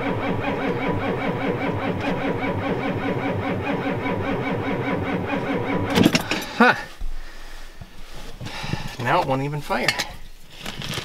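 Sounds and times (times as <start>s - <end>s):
diesel starter cranking: 0.0s - 6.8s.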